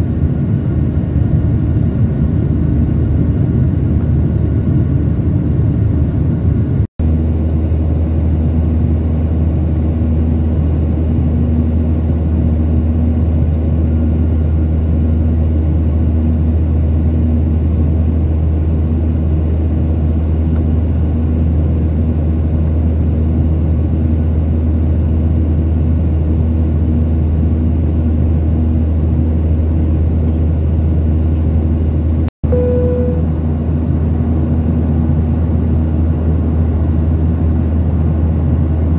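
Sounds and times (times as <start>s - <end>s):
jet engine drone in cabin: 0.0s - 38.9s
short single tone: 32.4s - 33.4s.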